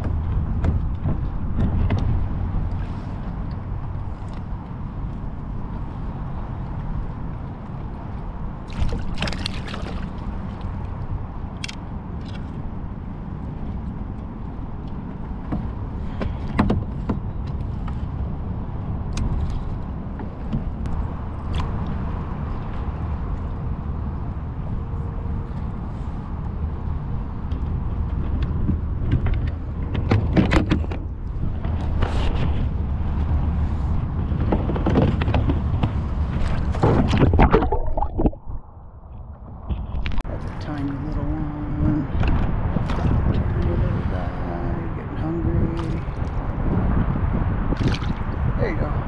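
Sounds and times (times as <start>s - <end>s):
water splashing and sloshing: 0.0s - 23.8s, 25.4s - 49.0s
wind rumble on microphone: 0.0s - 49.0s
water splashes: 8.6s - 11.0s, 36.2s - 44.4s, 45.2s - 46.6s, 47.6s - 48.9s
bubbles gurgling underwater: 37.0s - 38.6s.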